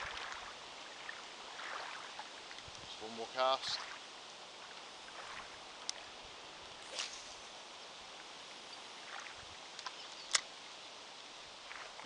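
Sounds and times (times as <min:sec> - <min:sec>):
lapping water: 0:00.0 - 0:04.0
wind: 0:00.0 - 0:12.0
fishing reel bail clicking shut: 0:09.8 - 0:10.5.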